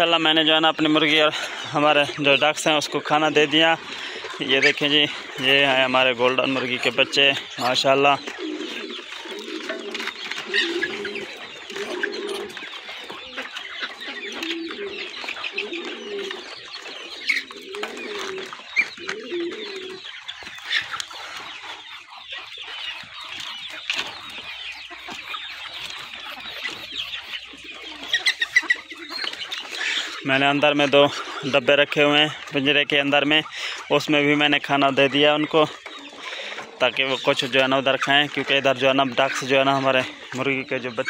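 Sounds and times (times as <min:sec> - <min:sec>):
chickens clucking and chirping: 0:00.0 - 0:41.0
low cooing call: 0:06.9 - 0:20.2.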